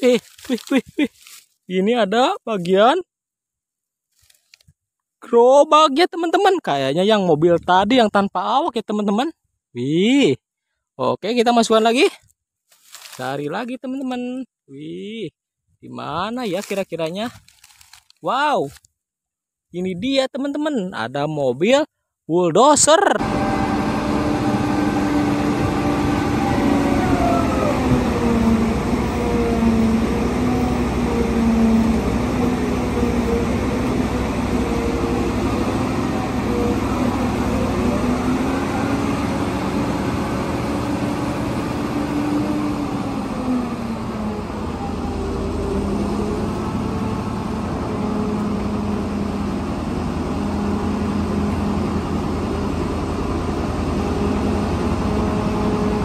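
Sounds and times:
diesel loader engine under load: 23.2 - 56.0.

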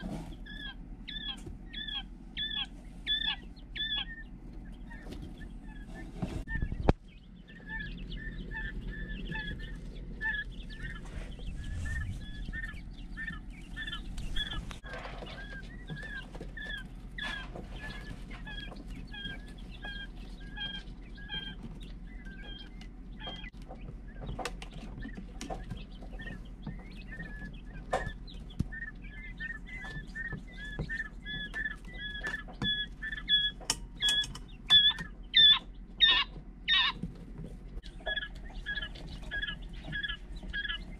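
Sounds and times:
low hum: 0.0 - 16.2
quail chicks peeping: 0.0 - 40.9.

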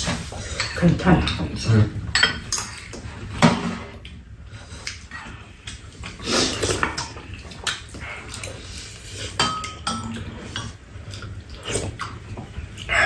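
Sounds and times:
utensils clinking against bowls: 0.0 - 3.9, 6.5 - 11.3.

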